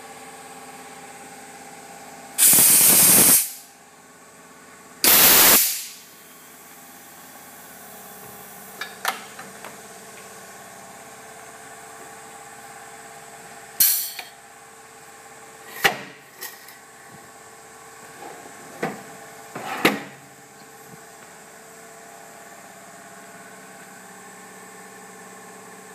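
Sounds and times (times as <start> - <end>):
steady machine hum: 0.0 - 25.9
air hiss blast: 2.4 - 3.7, 5.0 - 6.1.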